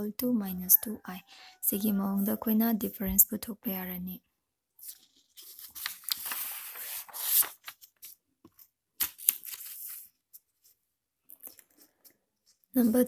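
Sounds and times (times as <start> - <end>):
paper rustling: 4.8 - 10.8.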